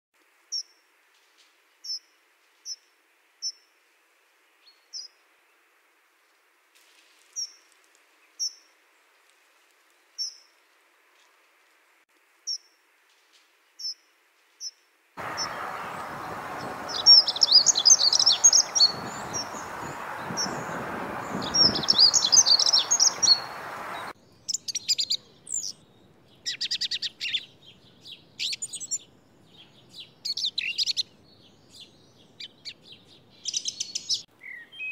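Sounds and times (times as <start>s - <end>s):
thrush singing loud phrases: 15.2s - 24.1s
steady background noise: 15.2s - 24.2s
thin high bird calls: 15.2s - 24.2s
warbling birdsong: 15.2s - 34.9s.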